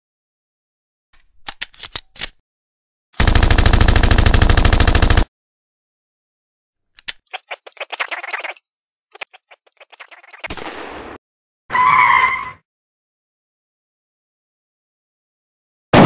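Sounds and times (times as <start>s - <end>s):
machine gun automatic fire: 3.2s - 5.3s.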